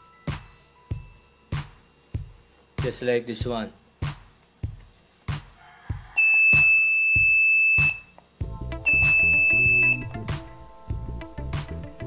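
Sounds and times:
background music with steady beat: 0:00.0 - 0:12.0
high-pitched buzzer beep: 0:06.2 - 0:08.1, 0:08.8 - 0:10.2.

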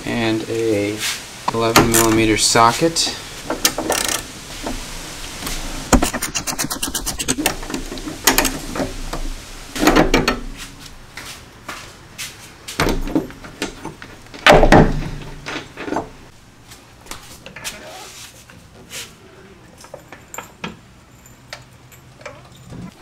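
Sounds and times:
ratchet clicks: 0:03.6 - 0:04.2, 0:06.0 - 0:07.5
impact wrench hammering: 0:05.9 - 0:07.7
tools clanking: 0:05.9 - 0:09.2.

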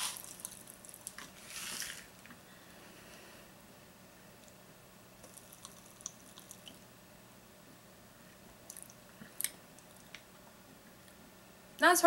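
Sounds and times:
popping candy crackling in mouth: 0:00.0 - 0:02.1, 0:05.2 - 0:06.8.

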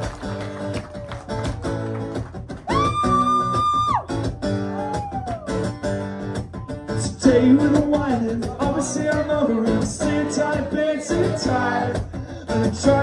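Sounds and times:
acoustic guitar strumming: 0:05.5 - 0:13.0
man singing: 0:06.9 - 0:13.0.

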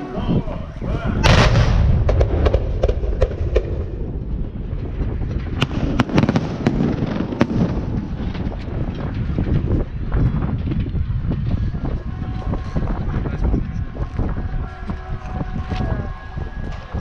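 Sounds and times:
low rumble: 0:00.0 - 0:17.0
firework bang: 0:01.2 - 0:09.4.

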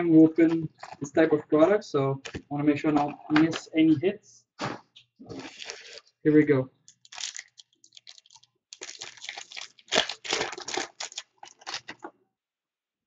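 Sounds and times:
wrapper tearing and crinkling: 0:05.3 - 0:06.1, 0:06.9 - 0:12.1.

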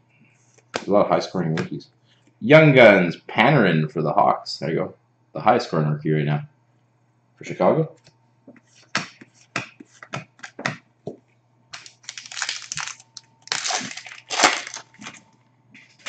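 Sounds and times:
foil wrapper crinkling and tearing: 0:11.8 - 0:15.2.

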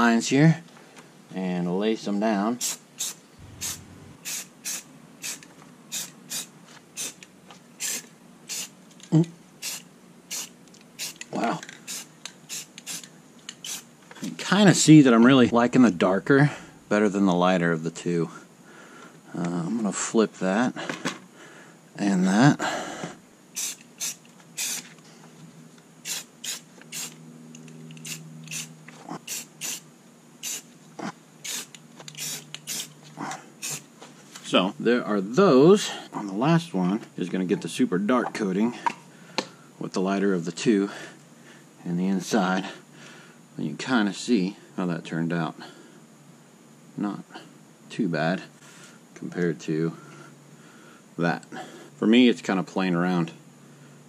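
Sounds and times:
spray paint can hissing: 0:02.6 - 0:07.2, 0:07.8 - 0:08.8, 0:09.6 - 0:13.9, 0:23.6 - 0:24.9, 0:26.0 - 0:27.2, 0:27.9 - 0:29.8, 0:30.4 - 0:30.7, 0:31.4 - 0:33.0, 0:33.6 - 0:33.9.

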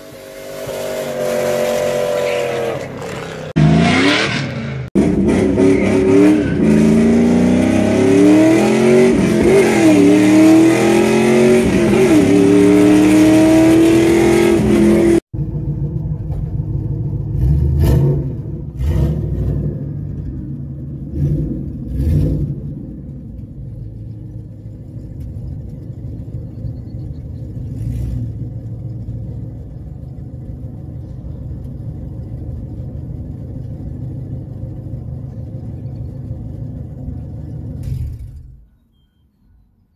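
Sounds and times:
engine revving blips: 0:00.0 - 0:15.2
car engine accelerating: 0:00.0 - 0:38.7
engine low rumble: 0:00.0 - 0:39.9.

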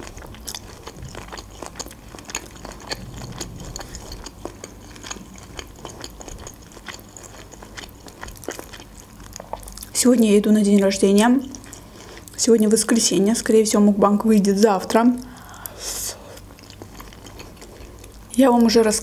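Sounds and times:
person chewing with wet mouth clicks: 0:00.0 - 0:09.9, 0:16.4 - 0:18.3.

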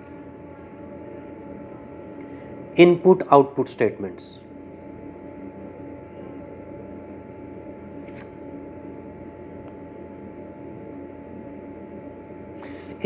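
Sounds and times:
low room hum and hiss: 0:00.0 - 0:13.0.

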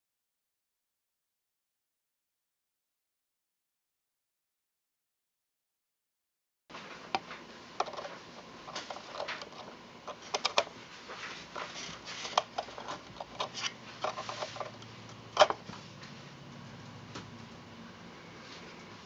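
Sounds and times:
tool scratching inside clock case: 0:11.6 - 0:15.6.

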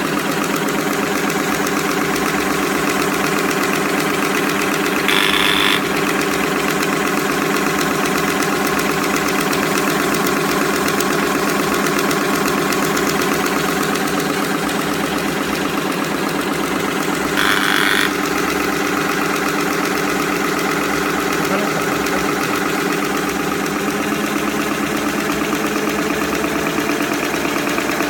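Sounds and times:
packing machine humming and chattering: 0:03.3 - 0:07.6, 0:17.4 - 0:18.3.

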